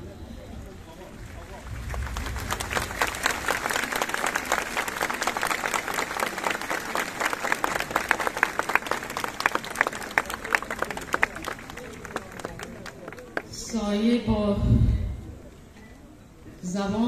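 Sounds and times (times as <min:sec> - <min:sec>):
crowd applauding: 0:00.0 - 0:13.6.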